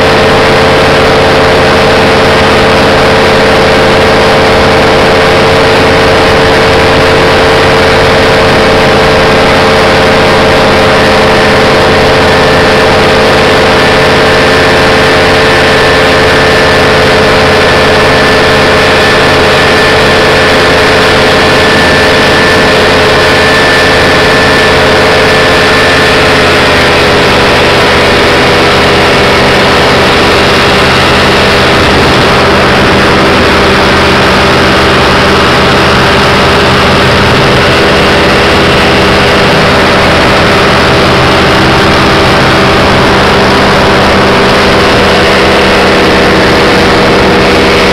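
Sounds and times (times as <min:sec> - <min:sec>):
small aircraft engine and propeller: 0:00.0 - 0:47.9.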